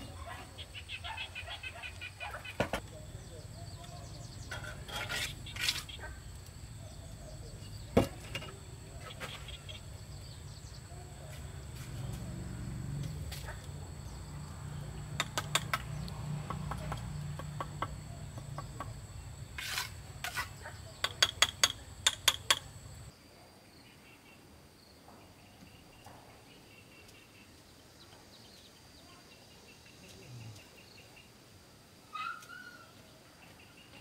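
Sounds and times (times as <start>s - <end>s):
insects trilling: 0.0s - 23.2s
trowel clicking on brick: 15.2s - 15.9s.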